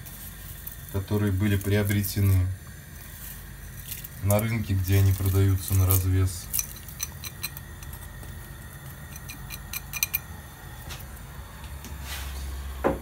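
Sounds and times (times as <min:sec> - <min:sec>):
low steady hum: 0:00.0 - 0:13.0
kitchen bowls clinking: 0:05.0 - 0:10.3.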